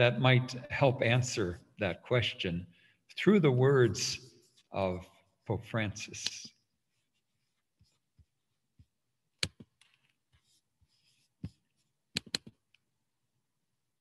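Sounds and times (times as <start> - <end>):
computer mouse clicking: 12.2 - 12.6.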